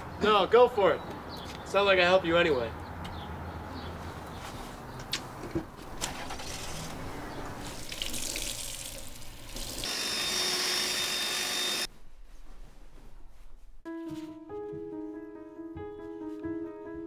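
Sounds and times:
water running from a tap: 7.6 - 9.9.

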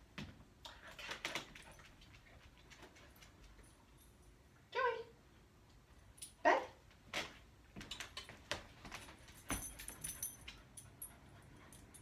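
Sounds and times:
harness jingling: 8.8 - 12.0.

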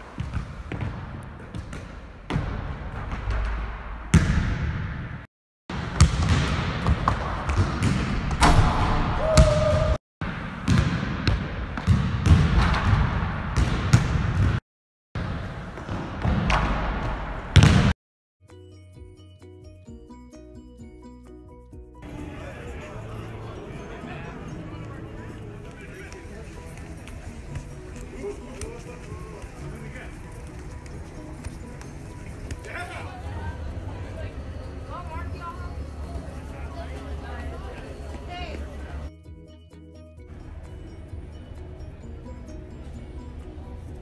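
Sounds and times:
music: 18.4 - 44.0.

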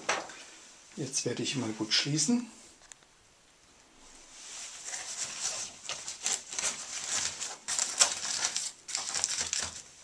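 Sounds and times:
fabric crinkling: 4.2 - 10.0.

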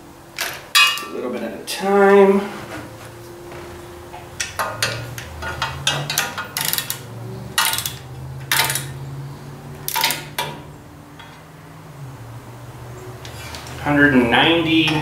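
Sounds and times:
socket ratchet clicking: 4.4 - 9.0.

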